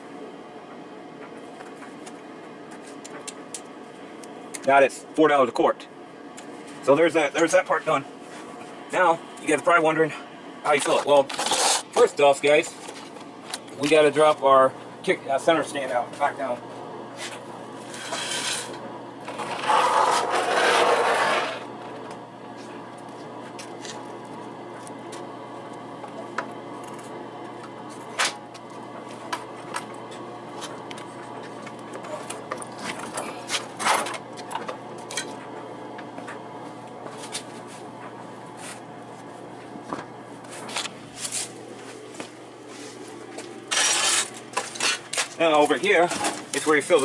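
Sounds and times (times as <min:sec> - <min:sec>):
steady low hum: 0:00.0 - 0:47.0
scraping under a scooter: 0:11.1 - 0:11.9, 0:17.2 - 0:21.7, 0:43.7 - 0:45.4.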